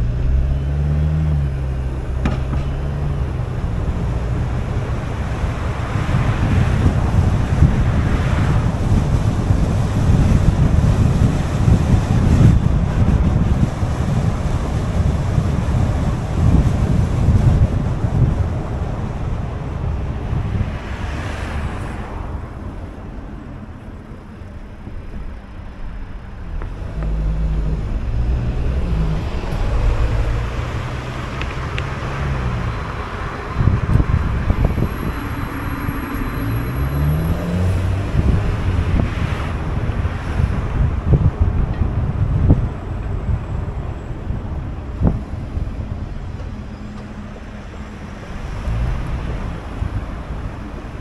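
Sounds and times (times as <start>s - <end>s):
car engine accelerating: 0.0s - 22.9s, 23.7s - 51.0s
tyre and road noise: 0.0s - 51.0s
wind buffeting microphone: 0.0s - 51.0s.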